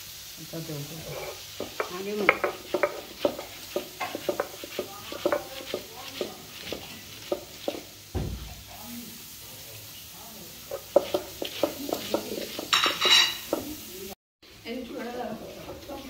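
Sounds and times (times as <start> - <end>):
food sizzling: 0.0 - 16.0
utensil scraping a metal pan: 1.0 - 7.9, 10.7 - 13.6.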